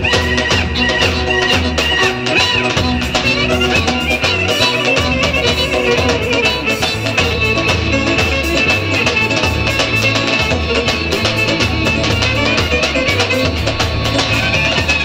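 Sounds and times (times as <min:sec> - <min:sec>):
clarinet melody: 0:00.0 - 0:15.0
steady drum beat: 0:00.0 - 0:15.0.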